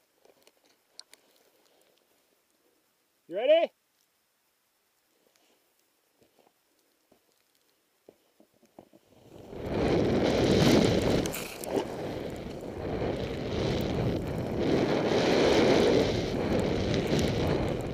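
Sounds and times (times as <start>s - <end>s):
wind rushing over microphone: 9.2s - 17.9s.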